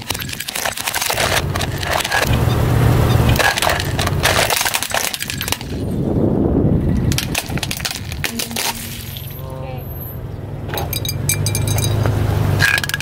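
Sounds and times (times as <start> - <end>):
plastic toys cracking and crunching: 0.0 - 6.1, 6.9 - 9.4, 12.6 - 13.0
low tyre rumble: 0.0 - 13.0.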